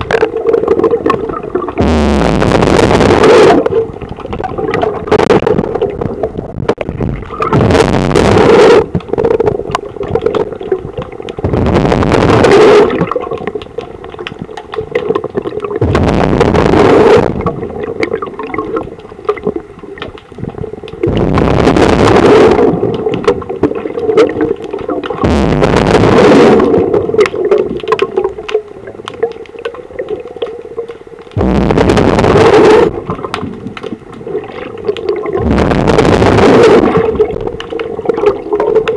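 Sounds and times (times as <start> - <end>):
steady bubbling hum: 0.0 - 38.9
diver exhaling bubbles: 0.2 - 6.2, 7.0 - 9.6, 11.5 - 13.4, 15.7 - 18.8, 20.6 - 27.7, 31.4 - 38.9.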